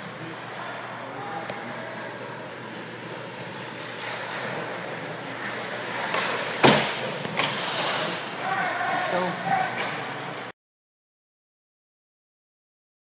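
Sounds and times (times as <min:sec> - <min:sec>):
skates on ice: 0:01.7 - 0:10.5.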